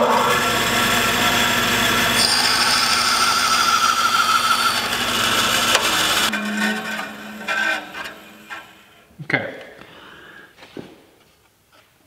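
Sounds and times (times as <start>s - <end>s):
bandsaw cutting wood: 0.0s - 9.1s
low machine hum: 0.0s - 9.1s.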